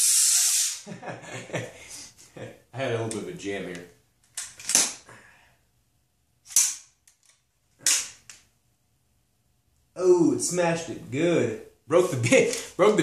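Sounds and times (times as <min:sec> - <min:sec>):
gas hiss: 0:00.0 - 0:00.9.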